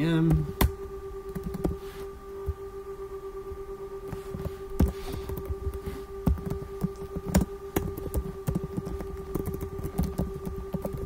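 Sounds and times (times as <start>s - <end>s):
steady background hum: 0.0s - 11.0s
keyboard typing: 1.3s - 1.8s, 4.1s - 11.0s.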